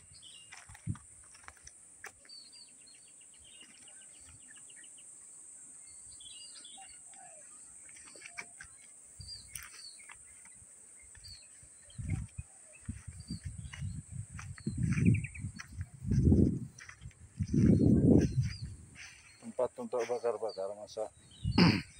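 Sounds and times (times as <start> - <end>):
small birds chirping: 0.0 - 21.9
fast rattling bird trill: 11.9 - 21.9.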